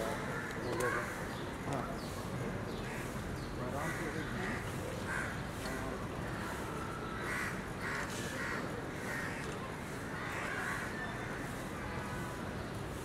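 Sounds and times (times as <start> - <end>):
crows cawing: 7.2 - 9.5.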